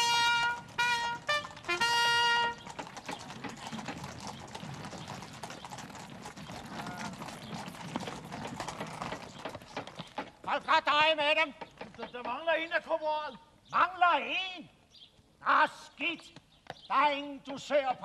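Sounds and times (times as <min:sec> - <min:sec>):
trumpet call: 0:00.0 - 0:02.7
horse hooves clattering on hard ground: 0:00.0 - 0:12.9.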